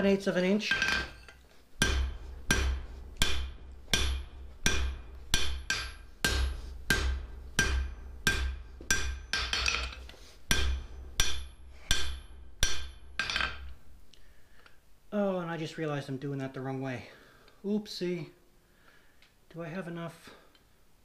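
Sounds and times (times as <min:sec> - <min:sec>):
hammer striking metal on anvil: 0:00.6 - 0:13.9.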